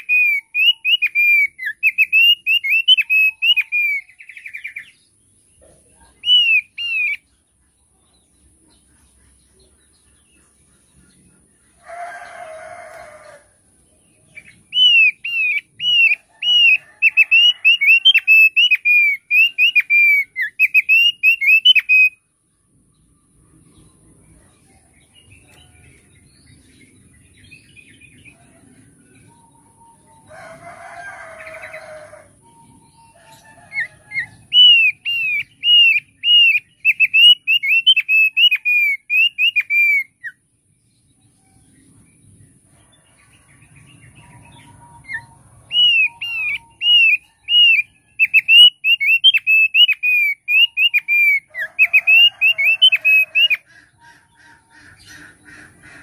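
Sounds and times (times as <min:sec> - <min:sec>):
bird singing whistled notes: 0:00.0 - 0:05.0, 0:06.1 - 0:07.3, 0:14.4 - 0:22.2, 0:32.4 - 0:40.4, 0:44.3 - 0:53.6.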